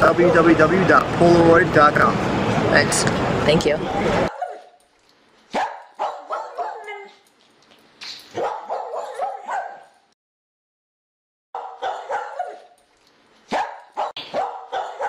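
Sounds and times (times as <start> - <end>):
dog barking and yipping: 4.3 - 4.9, 5.5 - 7.3, 8.1 - 10.0, 11.6 - 12.8, 13.4 - 15.0.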